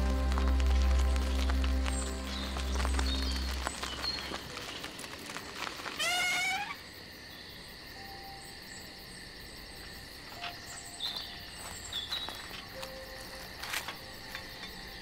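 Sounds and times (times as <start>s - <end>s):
insects chirping: 0.0s - 15.0s.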